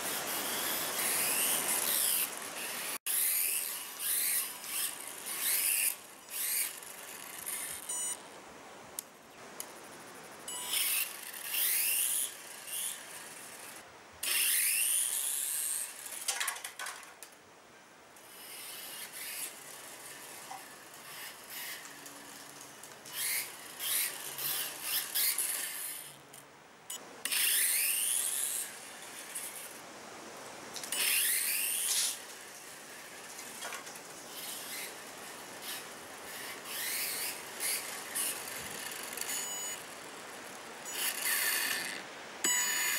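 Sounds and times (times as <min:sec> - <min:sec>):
small electric motor whining: 0:00.0 - 0:08.2, 0:10.2 - 0:16.3, 0:18.2 - 0:29.8, 0:30.8 - 0:42.9.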